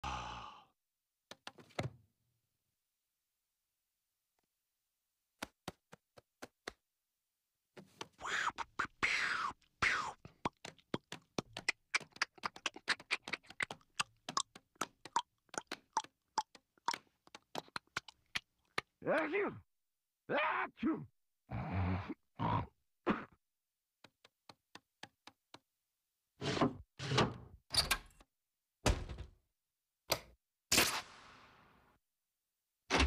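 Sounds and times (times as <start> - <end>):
mouth clicks and pops: 8.1 - 19.0.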